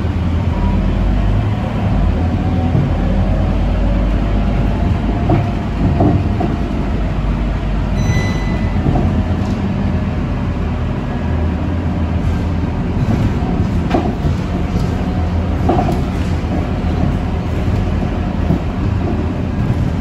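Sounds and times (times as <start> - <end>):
bus diesel engine rumble: 0.0 - 20.0
road noise: 0.0 - 20.0
short high beep: 8.0 - 8.8.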